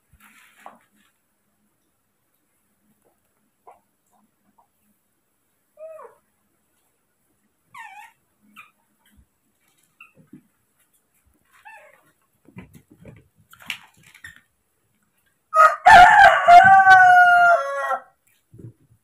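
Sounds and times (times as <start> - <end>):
faint taps and rustles: 9.0 - 15.4, 18.2 - 19.0
rooster crowing: 15.6 - 18.2.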